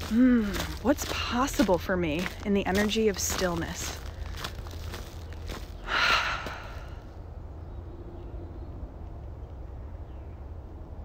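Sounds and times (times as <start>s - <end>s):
person sighing: 5.9s - 7.1s.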